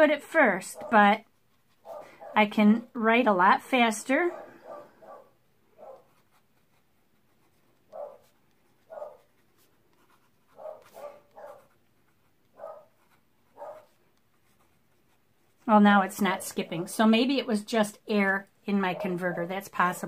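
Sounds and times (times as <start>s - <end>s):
pen nib scratching on card: 5.9s - 15.6s.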